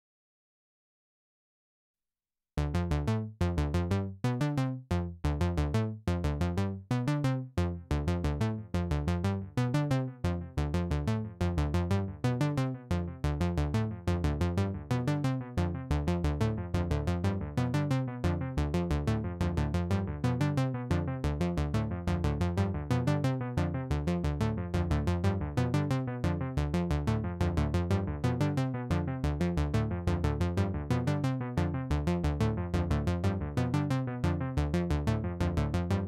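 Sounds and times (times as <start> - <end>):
synthesizer plucky low notes with echoes: 7.6 - 36.0.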